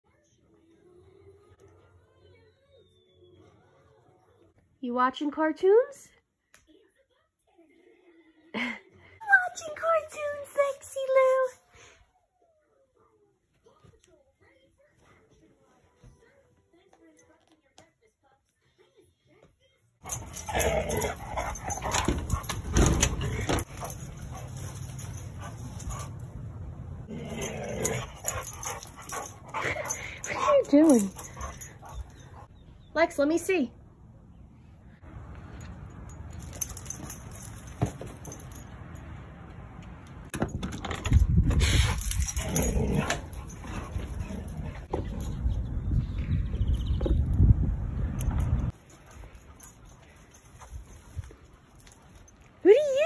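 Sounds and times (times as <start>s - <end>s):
metal dog tags jingling: 20.0s - 32.5s, 35.4s - 39.2s, 40.0s - 53.0s.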